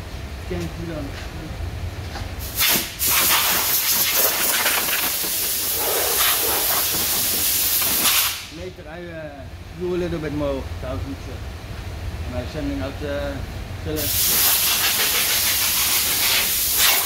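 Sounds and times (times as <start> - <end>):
air blow gun hissing: 2.4 - 8.5, 14.0 - 17.0.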